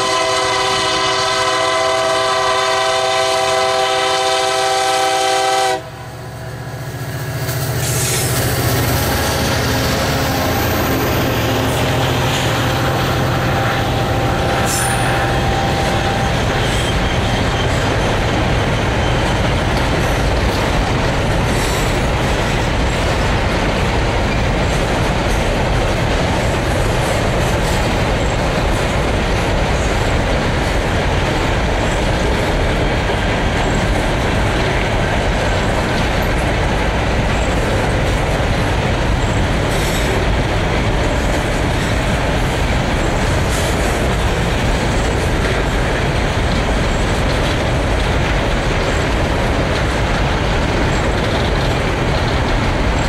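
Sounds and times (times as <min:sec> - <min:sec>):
locomotive air horn: 0:00.0 - 0:06.2, 0:11.4 - 0:17.8
locomotive engines rumbling: 0:00.0 - 0:53.0
freight wagons wheels on rails: 0:06.4 - 0:53.0.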